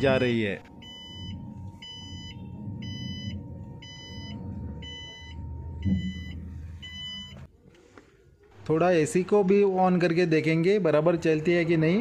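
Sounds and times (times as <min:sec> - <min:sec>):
low rumble: 0:00.0 - 0:07.5
reverse warning beeps: 0:00.0 - 0:07.5.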